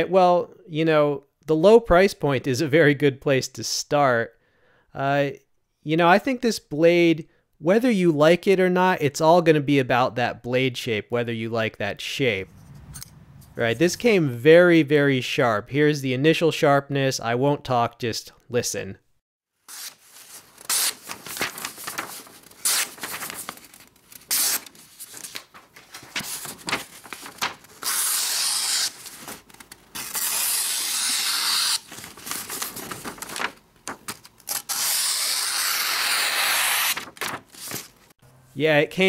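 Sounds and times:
knife slicing paper: 0:19.6 - 0:38.0.

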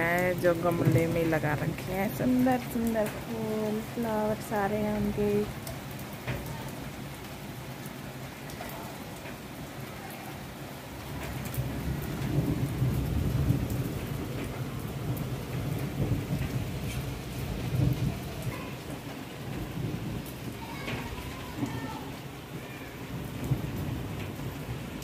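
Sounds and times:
water drips ticking: 0:00.0 - 0:10.2
steady rain: 0:00.0 - 0:25.0
thunder rumbling: 0:00.0 - 0:25.0.

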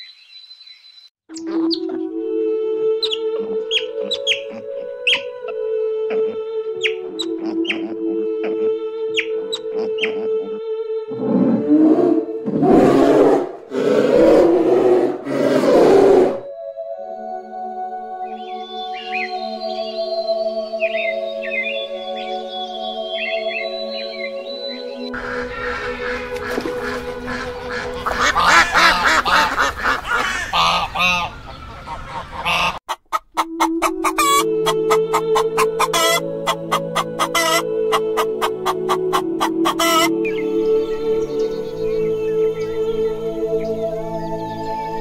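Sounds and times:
guineafowl sharp calls: 0:03.0 - 0:05.3, 0:27.3 - 0:40.1
ducks quacking: 0:03.0 - 0:10.5, 0:25.2 - 0:40.2
bear roaring: 0:11.1 - 0:16.4.

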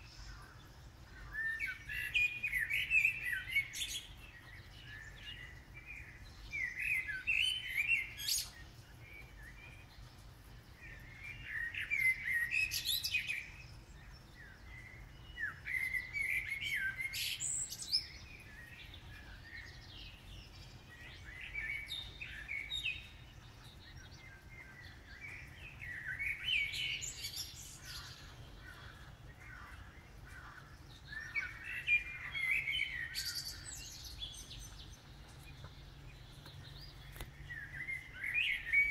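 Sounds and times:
blackbird singing: 0:00.0 - 0:38.9.

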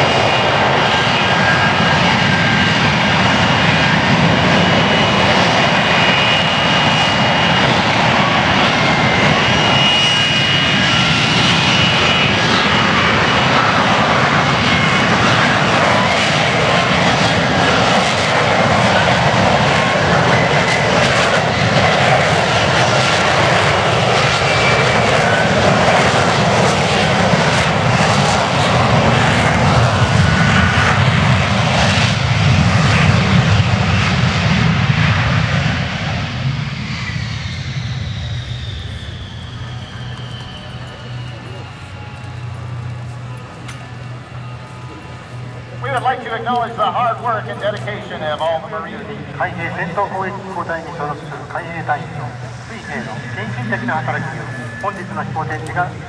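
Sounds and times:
jet engine roaring: 0:00.0 - 0:56.0
faint high whine: 0:37.8 - 0:56.0.

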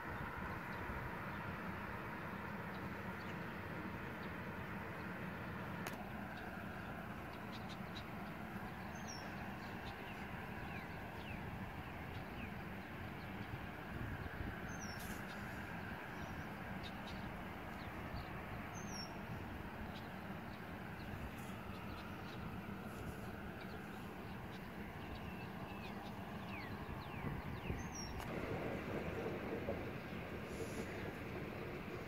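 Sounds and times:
freight train rumble: 0:00.0 - 0:32.0
small birds chirping: 0:04.1 - 0:28.3.

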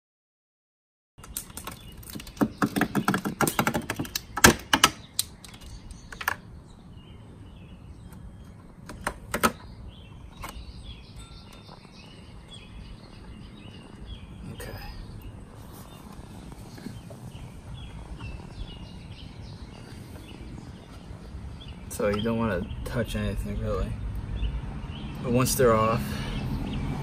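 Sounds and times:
sharp plastic snaps: 0:01.2 - 0:06.4.

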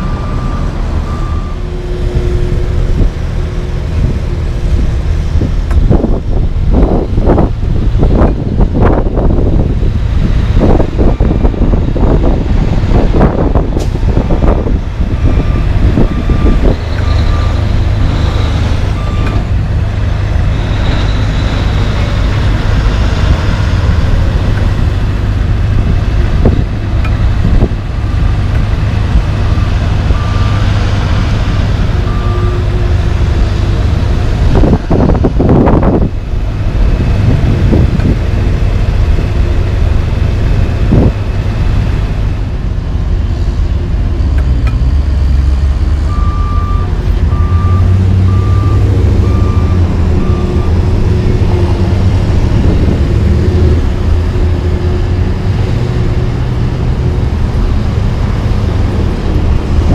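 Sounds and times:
backup alarm beeping: 0:00.0 - 0:02.6, 0:32.1 - 0:32.6
diesel truck engine running: 0:00.0 - 0:59.9.

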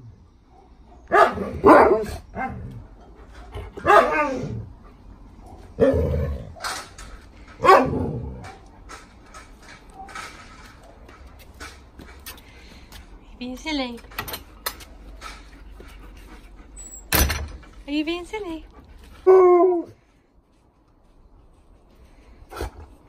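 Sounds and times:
dogs barking: 0:00.5 - 0:02.7, 0:03.7 - 0:04.5, 0:07.6 - 0:08.7.

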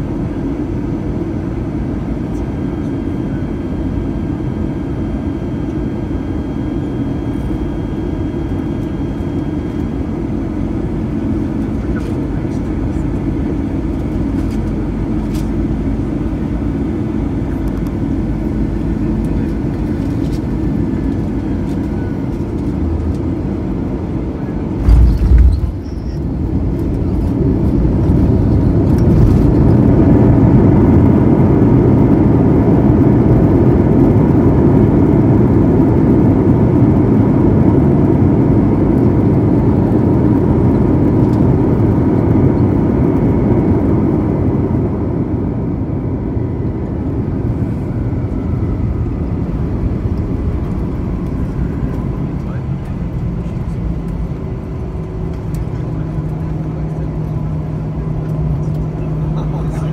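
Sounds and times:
jet engine and airflow noise: 0:00.0 - 0:59.9.

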